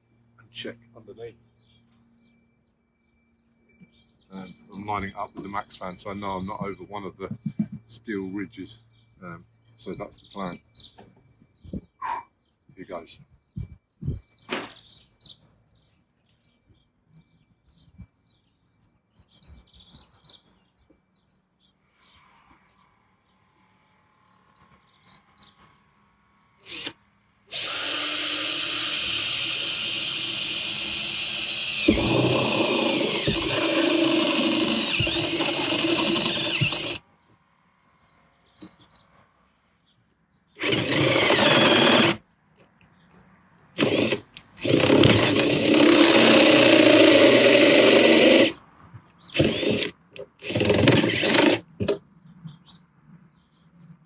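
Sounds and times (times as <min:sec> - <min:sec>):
birds chirping faintly: 0:00.0 - 0:54.0
cordless drill boring through metal: 0:26.6 - 0:37.0, 0:40.6 - 0:42.2, 0:43.8 - 0:48.6, 0:49.3 - 0:52.0.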